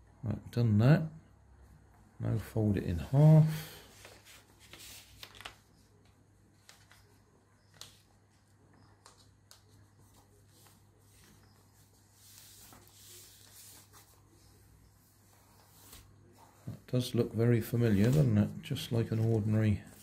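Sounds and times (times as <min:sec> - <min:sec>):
paper being folded: 0:03.9 - 0:16.8, 0:17.8 - 0:20.0.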